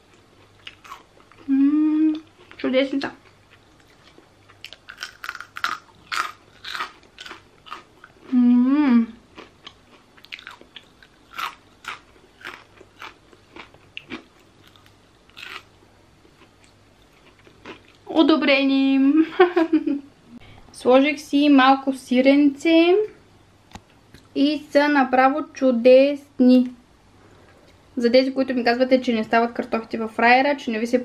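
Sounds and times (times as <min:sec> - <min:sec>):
person chewing crunchy fries: 0:00.0 - 0:01.5, 0:02.2 - 0:08.4, 0:09.2 - 0:18.1
person humming mmm: 0:01.4 - 0:02.3, 0:08.3 - 0:09.2.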